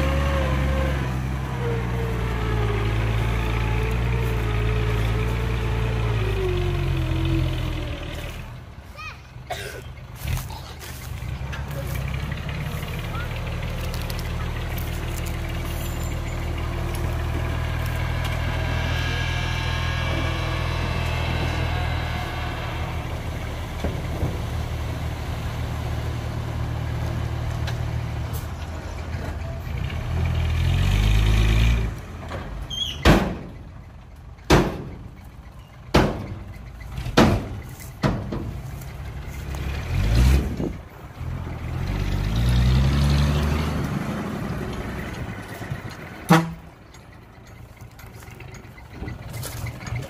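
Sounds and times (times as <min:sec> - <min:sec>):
diesel truck engine revving: 0:00.0 - 0:08.8, 0:10.0 - 0:50.0.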